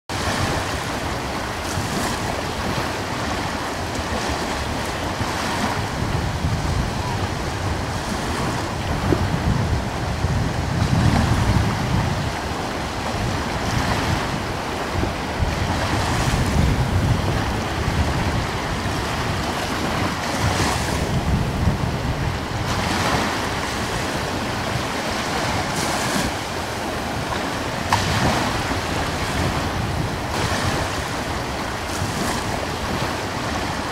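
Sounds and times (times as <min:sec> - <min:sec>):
ocean waves rushing: 0:00.1 - 0:33.9.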